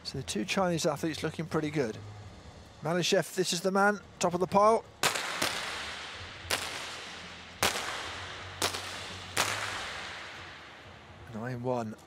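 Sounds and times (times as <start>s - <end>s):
pistol shots with echo: 5.0s - 11.1s.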